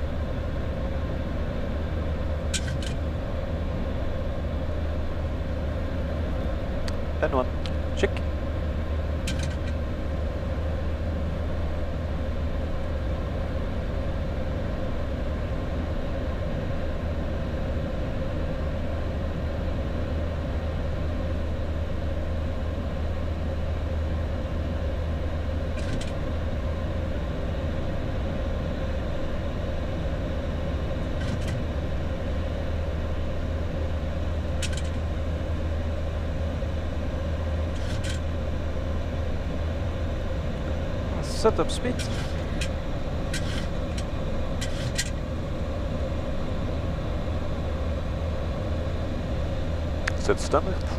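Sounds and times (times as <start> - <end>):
airplane cockpit hum: 0.0 - 50.9.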